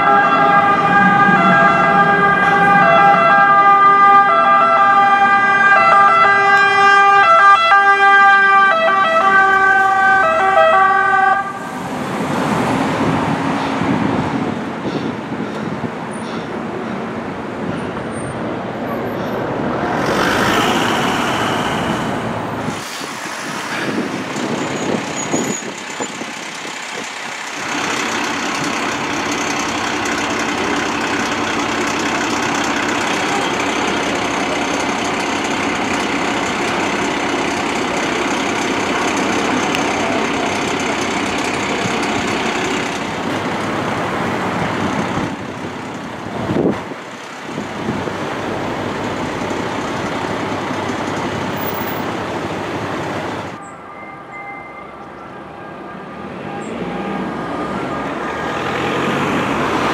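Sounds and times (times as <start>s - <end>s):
wind noise on microphone: 12.1s - 18.8s, 19.4s - 27.2s, 46.2s - 48.2s
fire truck engine idling: 25.6s - 53.6s.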